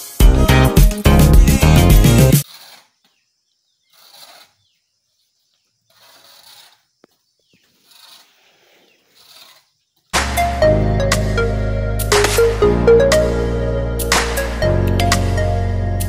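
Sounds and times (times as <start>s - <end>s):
background music: 0.0s - 2.4s, 10.2s - 16.0s
shovel scraping ground: 2.0s - 3.1s, 3.8s - 4.7s, 5.9s - 7.0s, 7.6s - 9.8s.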